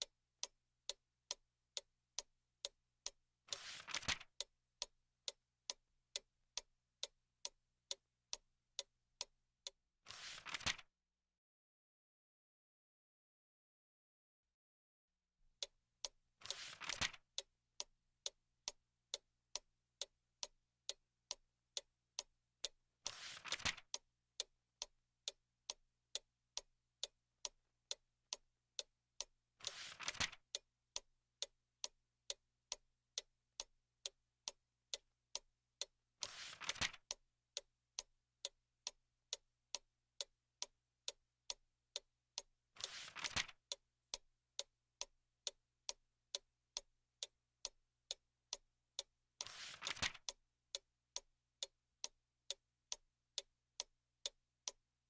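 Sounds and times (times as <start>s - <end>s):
clock ticking: 0.0s - 9.8s, 15.5s - 54.8s
book page turning: 3.6s - 4.2s, 10.1s - 10.8s, 16.5s - 17.2s, 23.1s - 23.8s, 29.7s - 30.4s, 36.3s - 37.0s, 42.8s - 43.5s, 49.4s - 50.2s.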